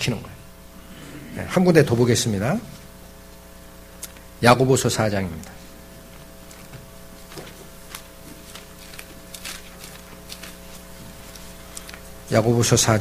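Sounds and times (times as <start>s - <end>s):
steady electrical hum: 0.0s - 13.0s
faint rustles and clicks: 6.1s - 12.2s.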